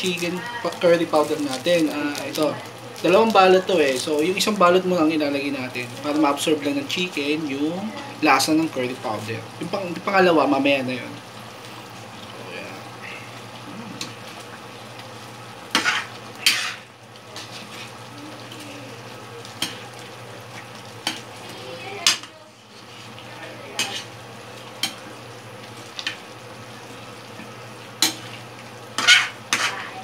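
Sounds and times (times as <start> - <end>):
curry sizzling: 0.0 - 30.0
spoon knocking and scraping pan: 15.7 - 16.8, 29.0 - 29.8.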